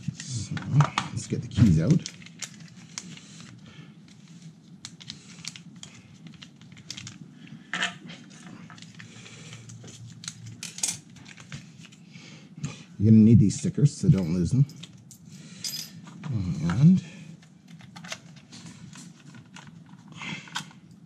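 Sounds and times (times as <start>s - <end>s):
plastic packet crinkling: 1.6s - 3.6s, 4.2s - 7.2s.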